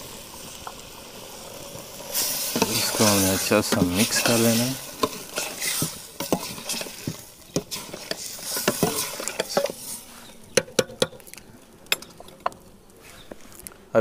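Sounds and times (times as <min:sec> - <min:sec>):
metal ladle scraping pot: 0:02.1 - 0:11.3.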